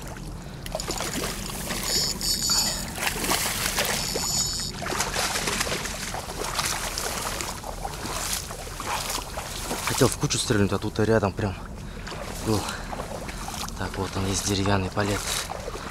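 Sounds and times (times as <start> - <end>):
water sloshing and splashing: 0.0 - 15.9
high banded chirring: 1.4 - 4.8.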